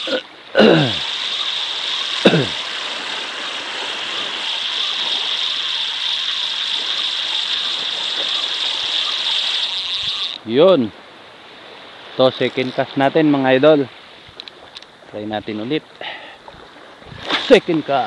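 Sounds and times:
fishing reel whirring: 0.0 - 10.6.

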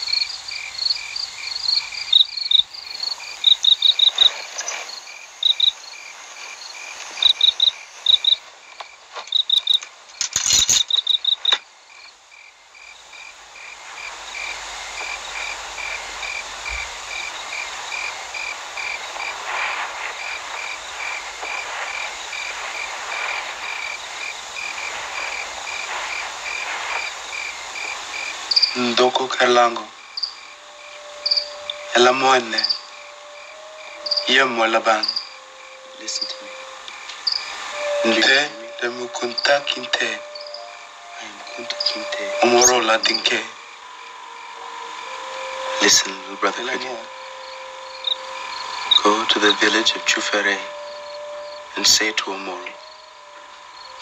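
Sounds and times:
loud high chirps: 0.0 - 8.5, 13.0 - 54.0
crickets chirping: 0.0 - 54.0
steady hiss: 0.0 - 54.0.

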